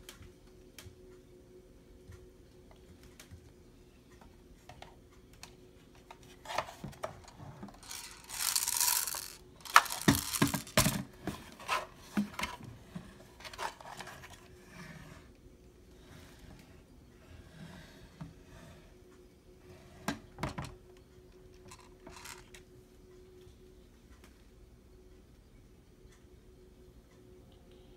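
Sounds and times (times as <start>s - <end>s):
faint steady hum: 0.0s - 27.9s.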